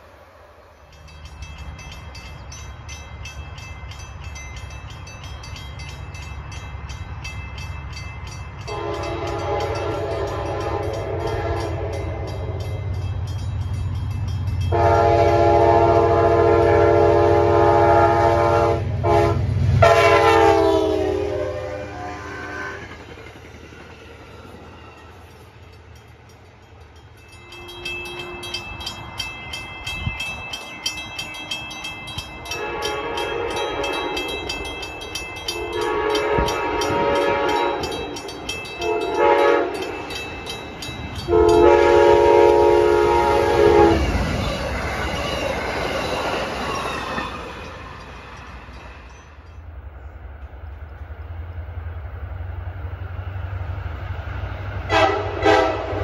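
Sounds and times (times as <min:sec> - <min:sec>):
train rumbling past: 0:00.0 - 0:56.0
crossing bell ringing: 0:00.7 - 0:19.2, 0:23.8 - 0:50.2
train air horn blasts: 0:08.7 - 0:12.7, 0:14.7 - 0:23.0, 0:32.5 - 0:34.2, 0:35.5 - 0:38.0, 0:38.8 - 0:39.9, 0:41.2 - 0:44.2, 0:54.9 - 0:56.0.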